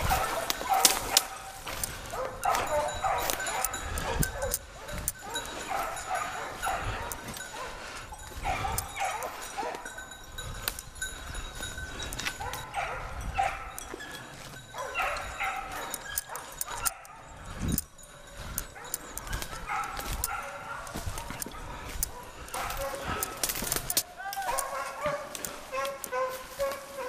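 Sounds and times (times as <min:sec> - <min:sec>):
twigs cracking underfoot: 0:00.0 - 0:09.9, 0:18.4 - 0:27.0
hounds baying: 0:00.0 - 0:27.0.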